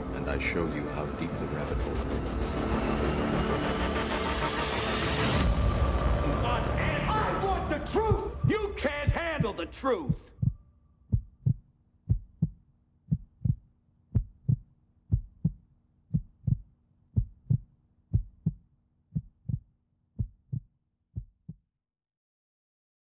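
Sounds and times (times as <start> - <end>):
heartbeat thumps: 8.0 - 21.6.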